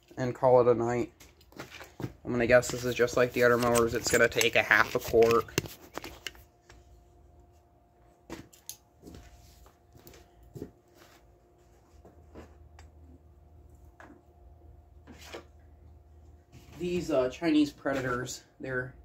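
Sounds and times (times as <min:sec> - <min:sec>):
faint steady hum: 0:00.0 - 0:19.0
handling clicks and knocks: 0:02.5 - 0:06.4.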